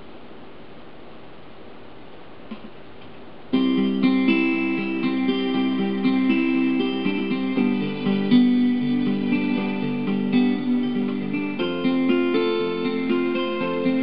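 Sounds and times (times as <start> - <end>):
lullaby on electronic keyboard: 3.5 - 14.0.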